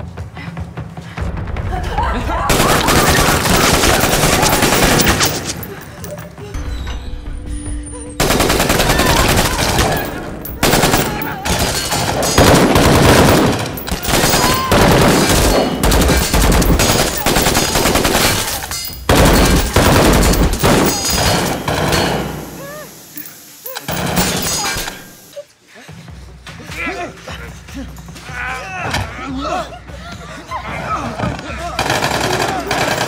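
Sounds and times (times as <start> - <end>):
automatic gunfire: 2.5 - 5.7, 8.2 - 22.0.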